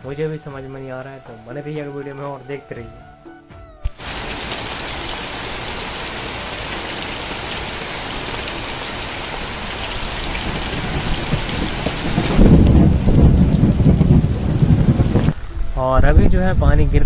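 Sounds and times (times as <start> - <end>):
heavy rain hissing: 3.9 - 16.1.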